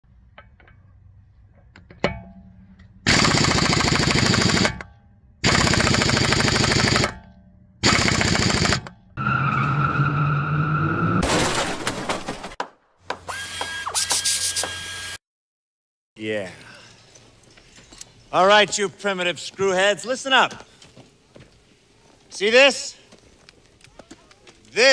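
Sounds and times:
impact wrench hammering: 0:01.8 - 0:09.1.

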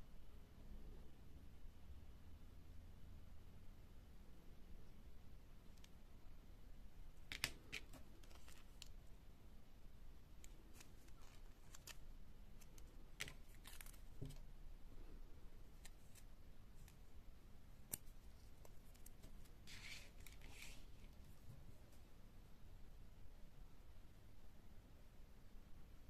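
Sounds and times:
paper rustling: 0:07.3 - 0:09.0, 0:10.4 - 0:12.0, 0:12.6 - 0:14.4, 0:17.9 - 0:21.4.

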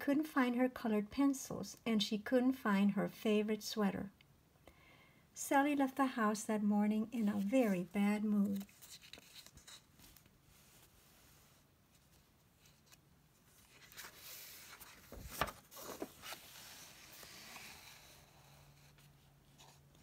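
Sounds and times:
paper rustling: 0:07.4 - 0:18.3
page flapping: 0:13.6 - 0:17.8.

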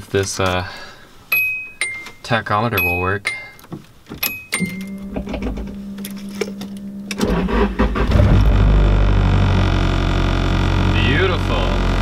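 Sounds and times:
car engine cranking and starting: 0:04.2 - 0:12.0.

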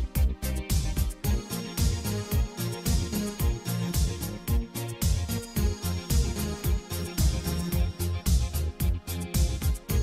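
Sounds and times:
thudding low drum beat: 0:02.9 - 0:10.0.

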